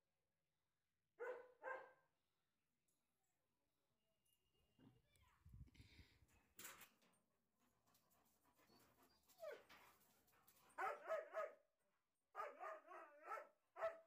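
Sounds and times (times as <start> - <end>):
dog barking: 1.2 - 2.0, 10.8 - 11.7, 12.3 - 14.0.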